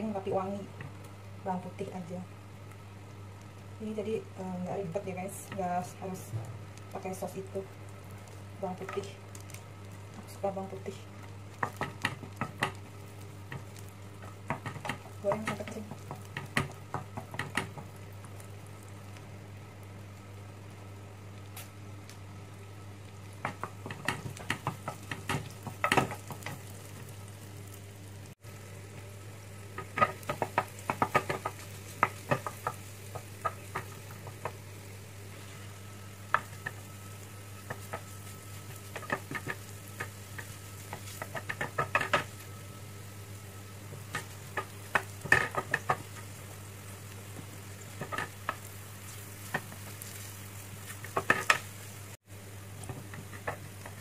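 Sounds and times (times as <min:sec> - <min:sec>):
mushrooms sizzling in butter: 0:00.0 - 0:54.0
wooden spatula clicking in pan: 0:11.5 - 0:12.8, 0:13.5 - 0:18.0, 0:23.4 - 0:26.6, 0:29.8 - 0:34.6, 0:38.8 - 0:42.3, 0:44.0 - 0:46.2.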